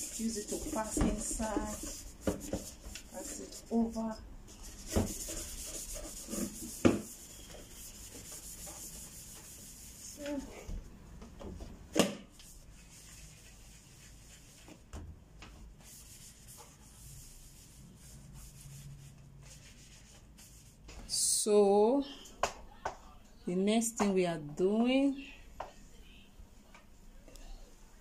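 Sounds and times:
sponge scrubbing metal kettle: 0.0s - 4.1s.

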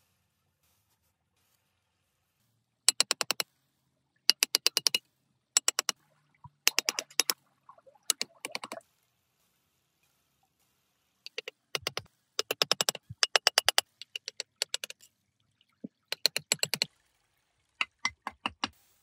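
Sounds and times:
rapid sharp clicking: 2.9s - 3.4s, 4.3s - 5.0s, 5.6s - 6.0s, 6.6s - 7.4s, 8.1s - 8.8s, 11.3s - 15.0s, 16.1s - 16.9s.

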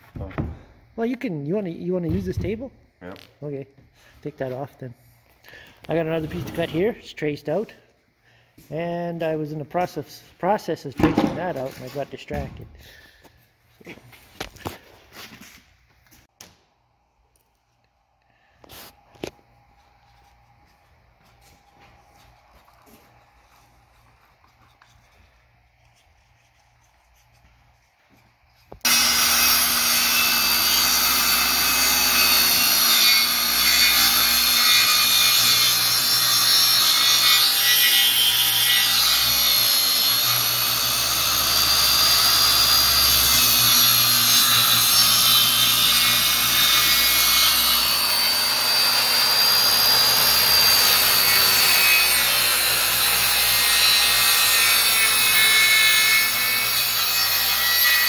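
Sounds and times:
circular saw cutting plywood: 28.8s - 58.0s.

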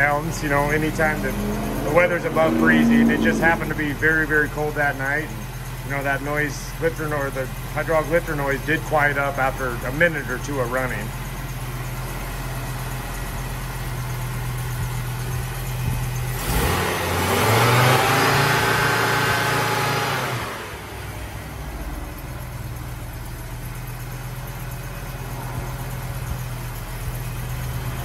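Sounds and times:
car engine idling and revving: 0.0s - 28.0s.

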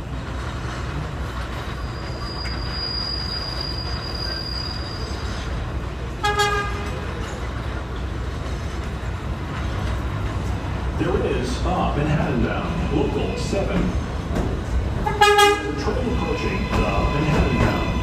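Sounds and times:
train wheels rumbling on rails: 0.0s - 18.0s
high wheel squeal: 1.5s - 5.6s, 15.1s - 18.0s
train horn toot: 6.2s - 6.9s, 15.0s - 15.8s.

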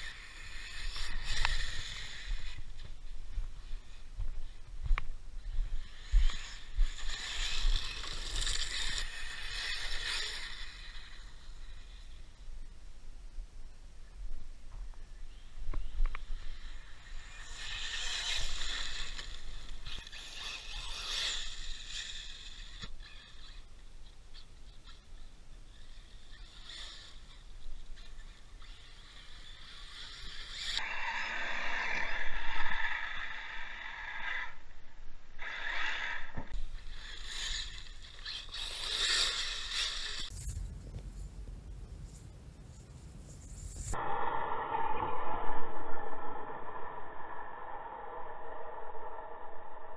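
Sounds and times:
rc truck on gravel: 0.0s - 12.6s, 15.3s - 34.8s, 35.4s - 44.9s
high motor whine: 0.0s - 12.8s, 13.7s - 49.9s.

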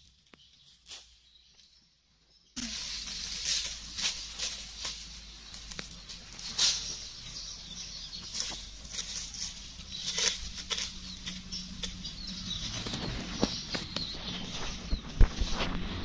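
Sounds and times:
leaves and stems rustling: 0.0s - 1.8s, 2.6s - 16.0s
hand hoe scraping dry soil: 2.6s - 7.2s, 8.3s - 16.0s.

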